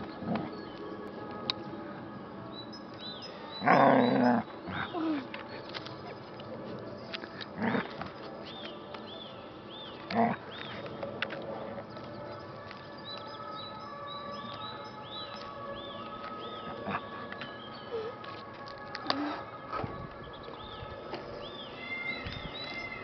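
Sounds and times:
dog growling: 3.6s - 5.0s, 7.6s - 8.0s, 10.1s - 10.6s.

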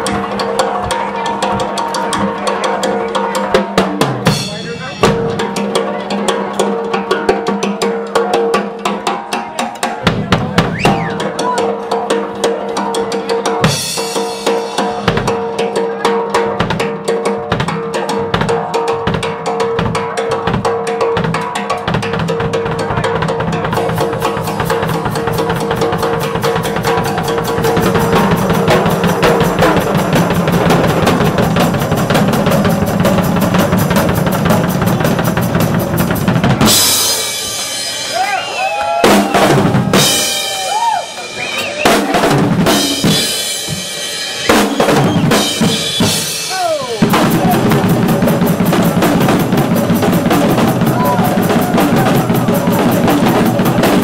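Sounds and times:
drum solo on toms and snare: 0.0s - 54.0s
cymbals ringing: 36.6s - 38.7s.

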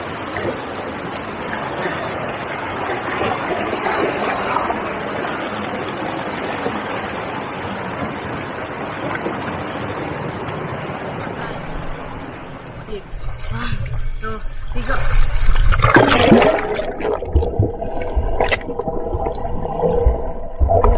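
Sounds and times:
river water rushing over rocks: 0.0s - 12.8s.

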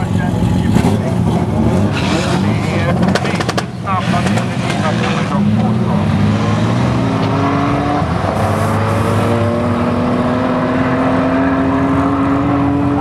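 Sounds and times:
drag car engine at full throttle: 0.0s - 13.0s.

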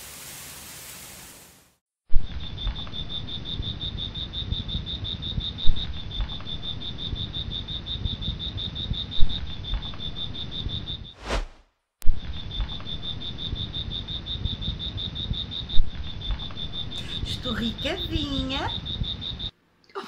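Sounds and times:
insect chirping: 2.2s - 11.4s, 12.1s - 19.6s
short whoosh: 11.2s - 11.7s.

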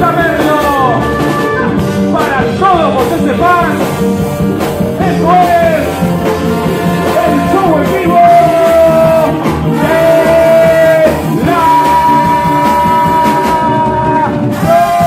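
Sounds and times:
live band playing: 0.0s - 15.0s
percussion: 0.0s - 15.0s
accordion: 4.2s - 11.4s
man singing long notes: 6.7s - 15.0s.

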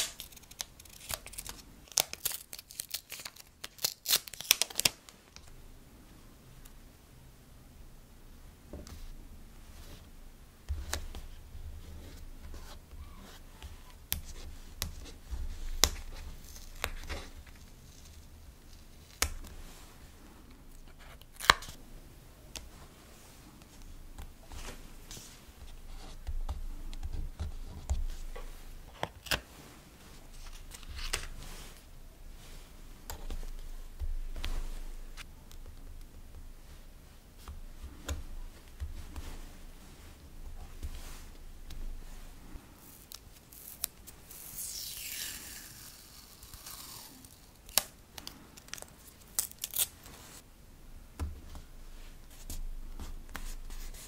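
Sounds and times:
paper rustling: 0.0s - 5.0s
stickers being peeled: 0.0s - 5.0s, 42.9s - 50.0s.

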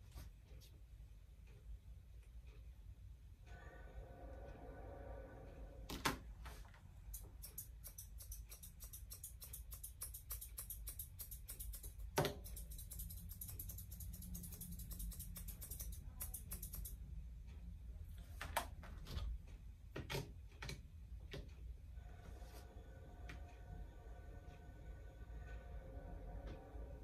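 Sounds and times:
shears snipping hair: 7.1s - 17.0s.

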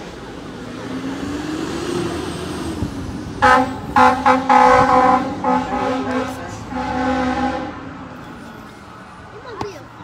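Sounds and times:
road traffic noise: 0.0s - 10.0s
vehicle horn blasts: 3.4s - 7.8s.

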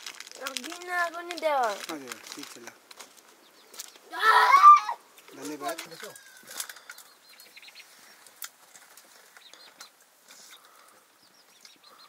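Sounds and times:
sharp clicks and crackles: 0.0s - 4.0s
small birds chirping: 0.1s - 12.0s.

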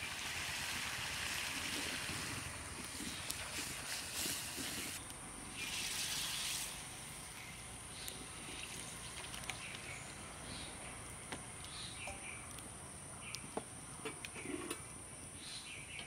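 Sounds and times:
curry hissing and bubbling in wok: 0.0s - 16.0s.

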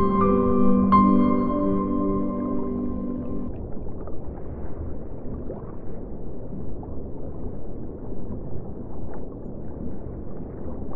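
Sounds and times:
small water splashes: 3.5s - 10.9s
water sloshing and lapping: 3.5s - 10.9s.

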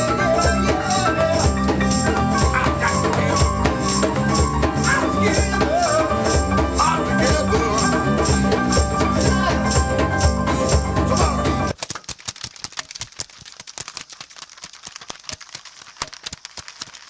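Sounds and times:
rock band music: 0.0s - 11.8s.

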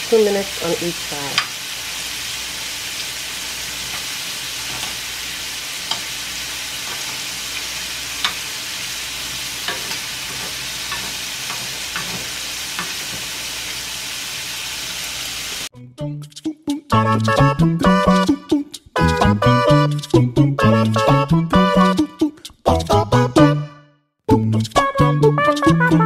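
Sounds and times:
shrimp sizzling in butter: 0.0s - 15.7s
metal tongs clicking on pan: 1.3s - 1.6s, 4.7s - 5.1s, 5.8s - 6.2s, 6.8s - 8.5s, 9.6s - 13.2s.

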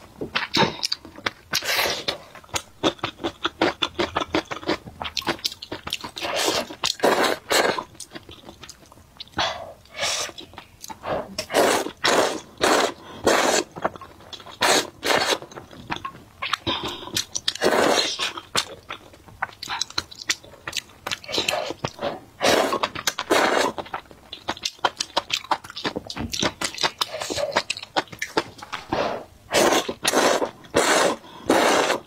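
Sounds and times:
chewing and smacking mouth sounds: 0.3s - 11.0s, 11.9s - 29.0s
person slurping noodles: 1.6s - 2.2s, 6.2s - 7.8s, 9.9s - 10.4s, 11.0s - 13.7s, 14.6s - 15.4s, 16.7s - 18.4s, 21.3s - 23.8s, 28.8s - 32.0s.

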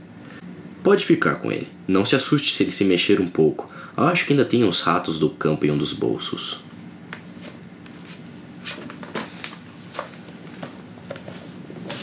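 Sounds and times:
steady low hum: 0.0s - 12.0s
paper rustling: 7.1s - 12.0s.

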